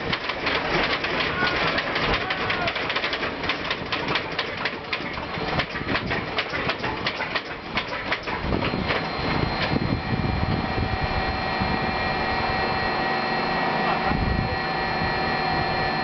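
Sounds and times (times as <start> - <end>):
steady whine: 0.0 - 16.0
radial aero engine firing pops: 2.8 - 9.9.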